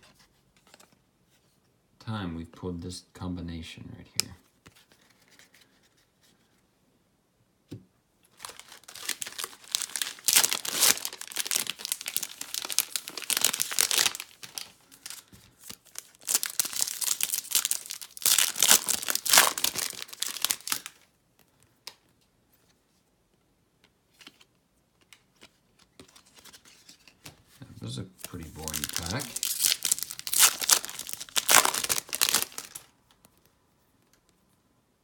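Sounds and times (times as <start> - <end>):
foil wrapper crinkling and tearing: 8.3 - 21.1, 28.2 - 32.9.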